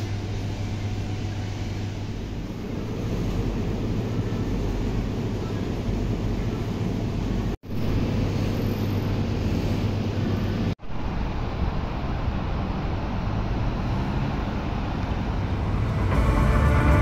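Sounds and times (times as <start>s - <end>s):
low rumble: 14.6s - 17.0s.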